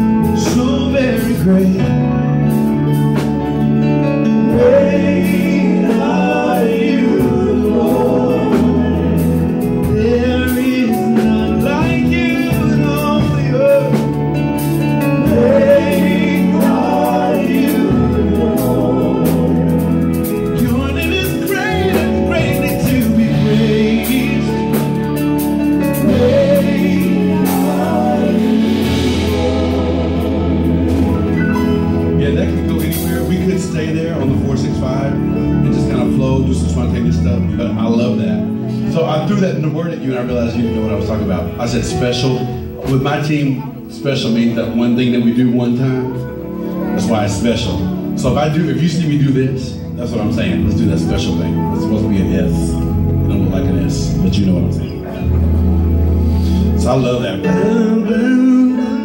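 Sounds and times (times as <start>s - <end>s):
man singing lead: 0.0s - 38.0s, 56.7s - 59.0s
drum kit groove: 0.0s - 38.8s
electric bass: 0.0s - 59.0s
keyboard chords: 0.0s - 59.0s.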